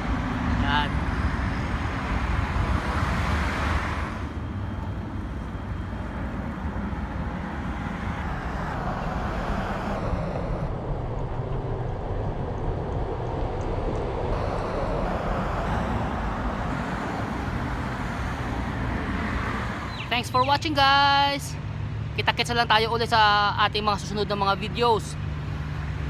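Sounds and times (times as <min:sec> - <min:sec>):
wind noise on microphone: 0:00.0 - 0:20.6
cars passing: 0:00.0 - 0:26.0.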